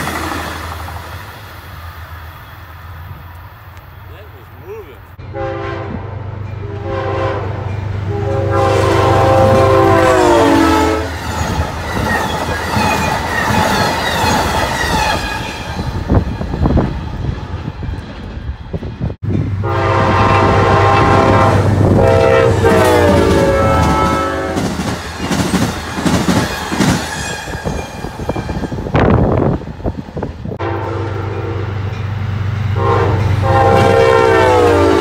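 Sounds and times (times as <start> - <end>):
train horn chord: 5.2 - 11.2, 19.6 - 24.7, 30.6 - 32.0, 32.8 - 35.0
wheels clacking over rail joints: 22.7 - 28.8.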